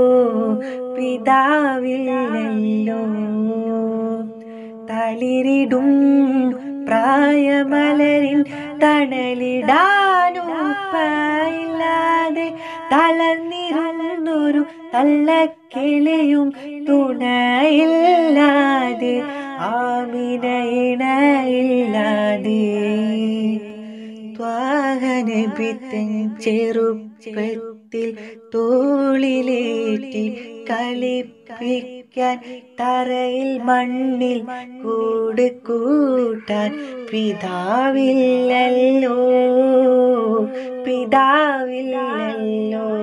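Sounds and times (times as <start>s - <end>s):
person singing devotional song: 0.0s - 43.0s.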